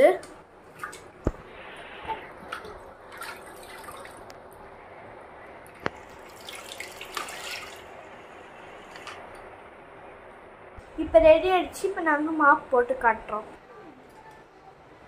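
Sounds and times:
water dripping and splashing: 0.7s - 1.4s, 2.4s - 4.4s, 5.7s - 7.9s.

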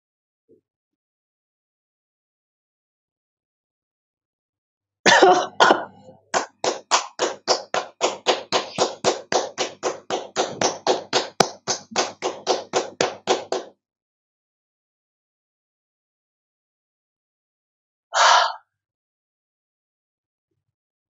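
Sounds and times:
person clapping hands: 5.3s - 13.7s.

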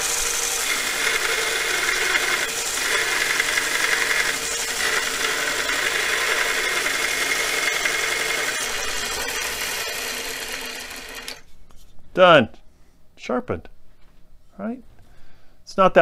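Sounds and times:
belt grinder grinding steel: 0.0s - 11.4s
motor winding down: 0.0s - 11.4s.

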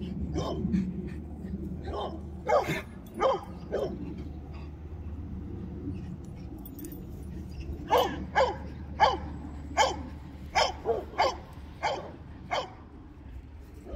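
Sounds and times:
steady low rumble: 0.0s - 13.9s
dog barking: 0.3s - 0.7s, 1.9s - 4.0s, 7.9s - 12.8s.

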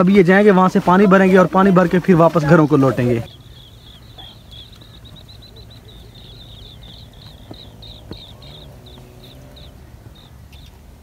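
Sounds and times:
insect chirping: 3.2s - 10.8s.

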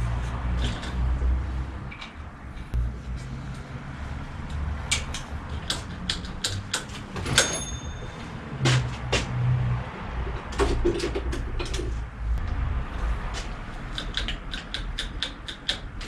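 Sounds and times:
steady low rumble: 0.0s - 5.6s, 11.9s - 13.9s
hand tools clicking and clinking: 4.8s - 8.9s, 13.8s - 16.0s
metallic clink ringing: 7.4s - 8.4s.

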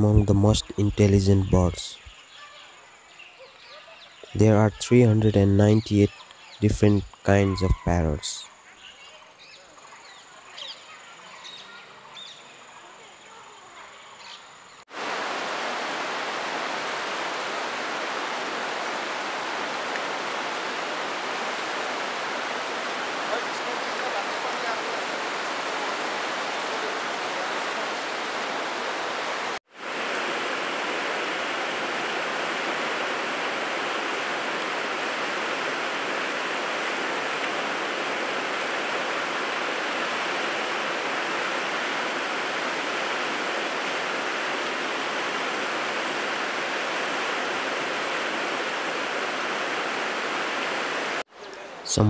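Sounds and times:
river water rushing over rocks: 14.9s - 51.2s.

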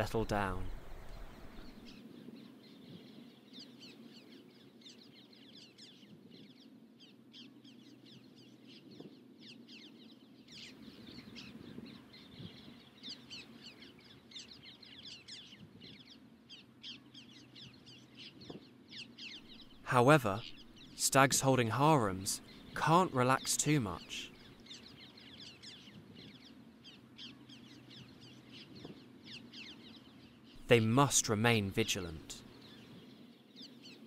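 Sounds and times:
faint low hum: 0.0s - 2.0s
birds chirping: 0.0s - 34.0s.

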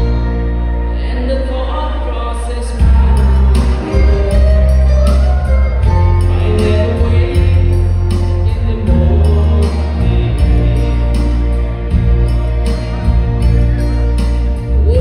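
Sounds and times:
heavy bass: 0.0s - 15.0s
man singing into a microphone: 0.9s - 12.0s, 14.7s - 15.0s.

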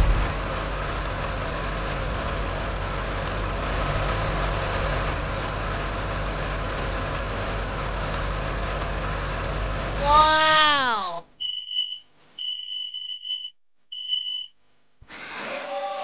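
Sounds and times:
truck engine drone: 0.0s - 10.6s.

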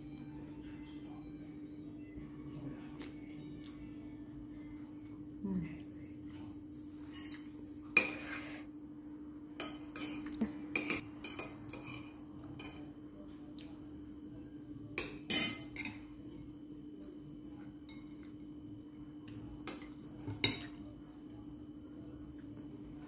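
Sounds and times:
metal spoon clinking on bowl: 15.0s - 16.1s.

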